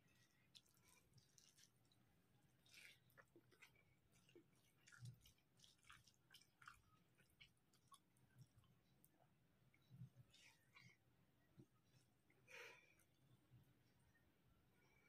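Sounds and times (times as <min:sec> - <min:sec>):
fingers mixing rice on plate: 0:00.0 - 0:08.7
wet chewing clicks: 0:00.0 - 0:10.8.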